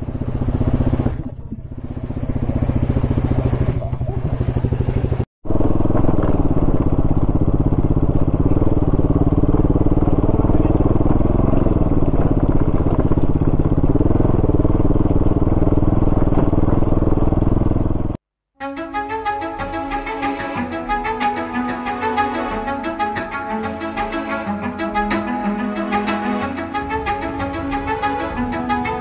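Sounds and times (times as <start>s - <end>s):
motorcycle engine running: 0.0s - 18.2s.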